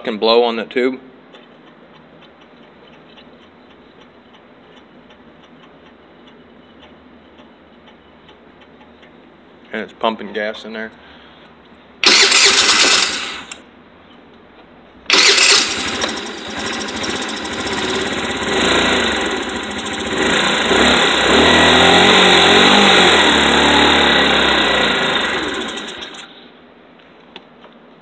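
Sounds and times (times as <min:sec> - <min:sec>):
scooter engine cranking: 0:12.0 - 0:13.6, 0:15.1 - 0:26.4
scooter engine revving: 0:12.0 - 0:13.6, 0:15.1 - 0:26.4.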